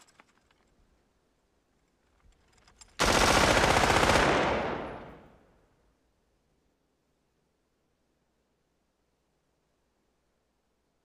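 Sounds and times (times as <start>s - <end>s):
automatic gunfire: 3.0s - 5.4s.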